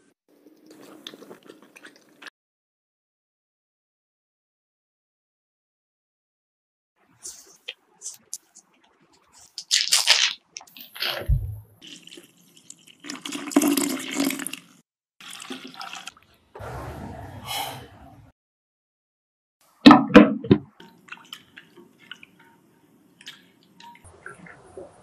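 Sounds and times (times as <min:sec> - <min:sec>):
foil wrapper crinkling: 0:09.4 - 0:10.4.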